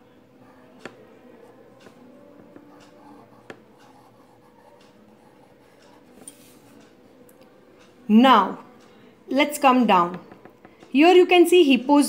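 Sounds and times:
marker pen scratching on paper: 0:00.8 - 0:06.8
pen tapping: 0:00.8 - 0:06.8, 0:09.9 - 0:11.0.

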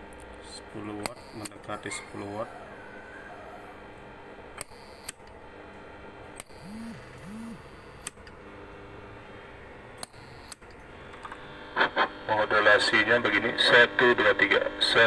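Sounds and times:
low hum with hiss: 0:00.0 - 0:15.0
sharp clicks: 0:01.0 - 0:01.6.

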